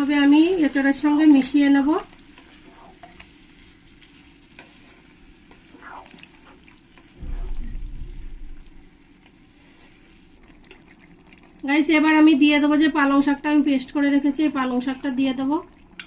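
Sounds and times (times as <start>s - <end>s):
faint sizzle: 0.0s - 16.0s
low rumble: 7.2s - 9.2s.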